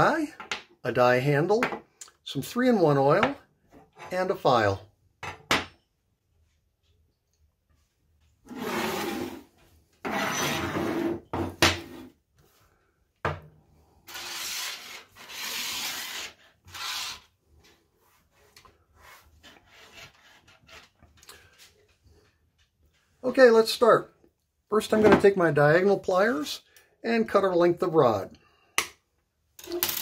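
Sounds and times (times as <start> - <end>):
metal tools scraping across table: 8.5 - 12.1, 14.1 - 17.3.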